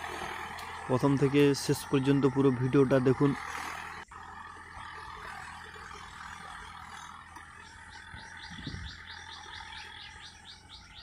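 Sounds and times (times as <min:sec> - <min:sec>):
tractor engine running: 0:00.0 - 0:11.0
bird chirping: 0:04.8 - 0:11.0.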